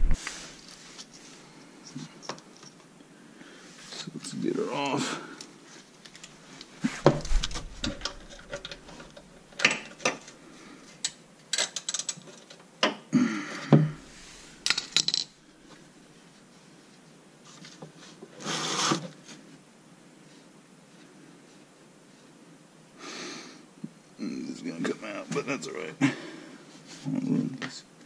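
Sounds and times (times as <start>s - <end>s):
rustle: 0.2s - 4.5s.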